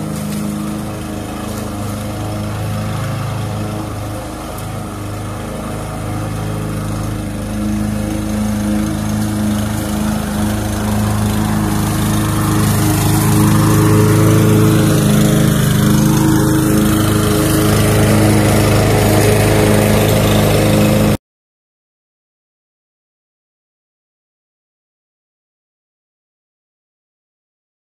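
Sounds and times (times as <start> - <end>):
lawn mower engine running: 0.0 - 21.2.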